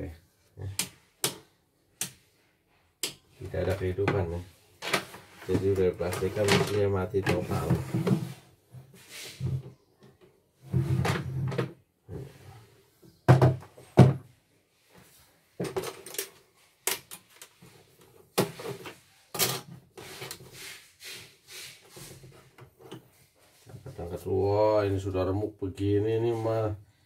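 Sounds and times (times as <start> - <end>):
plastic clacks and knocks: 3.7 - 8.3, 13.1 - 14.2, 15.6 - 17.6.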